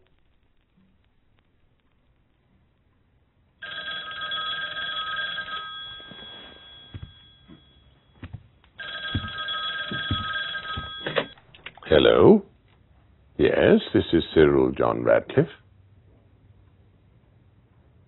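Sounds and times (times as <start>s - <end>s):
telephone ringing: 3.6s - 11.4s
soft knocks: 6.9s - 11.4s.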